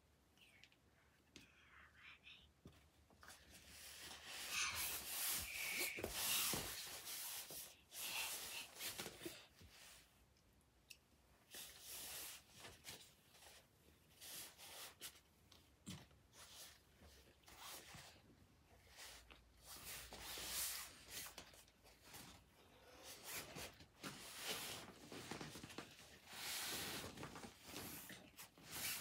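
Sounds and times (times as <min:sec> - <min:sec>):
rustling and scraping on fabric: 0:03.2 - 0:10.1, 0:16.3 - 0:29.0.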